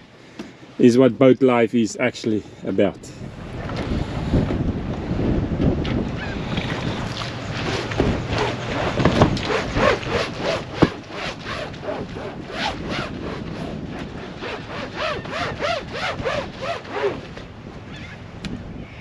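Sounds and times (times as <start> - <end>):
hand scrubbing boat deck: 6.2 - 17.6.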